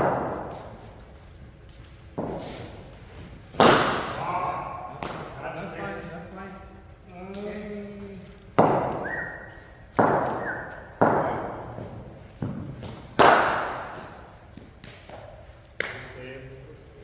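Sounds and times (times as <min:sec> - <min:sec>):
cricket bat hitting ball: 0:03.6 - 0:04.2, 0:12.4 - 0:14.3.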